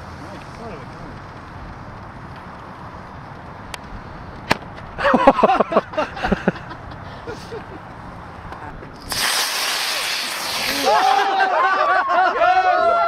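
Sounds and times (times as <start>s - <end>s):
steady hiss: 0.0s - 11.2s
spectators shouting and whooping: 10.5s - 13.0s.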